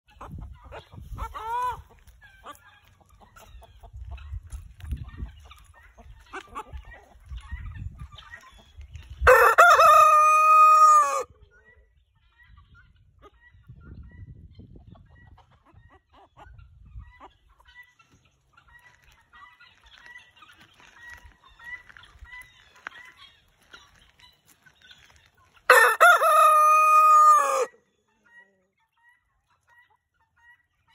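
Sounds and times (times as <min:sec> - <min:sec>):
rooster crowing: 0:09.3 - 0:11.3, 0:25.7 - 0:27.8.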